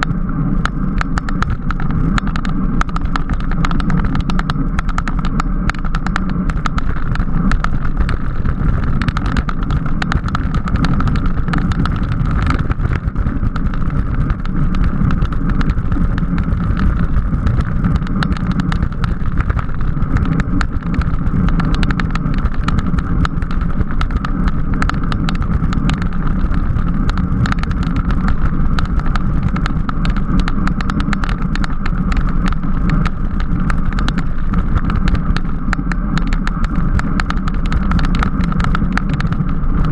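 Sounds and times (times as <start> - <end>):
bicycle tyre and drivetrain rumble: 0.0 - 39.9
faint steady hum: 0.0 - 39.9
wind on microphone: 0.0 - 39.9.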